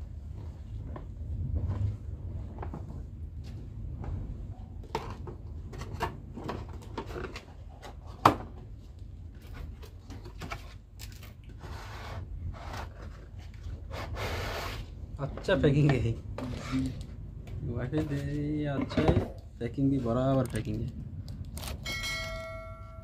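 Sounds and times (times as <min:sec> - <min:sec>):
cardboard box rustling and scraping: 0:11.6 - 0:15.0.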